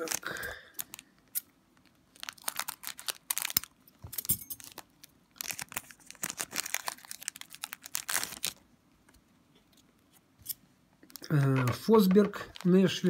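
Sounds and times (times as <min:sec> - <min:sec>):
card pack wrapper crinkling: 0:00.0 - 0:03.8, 0:04.6 - 0:08.6, 0:11.0 - 0:13.0.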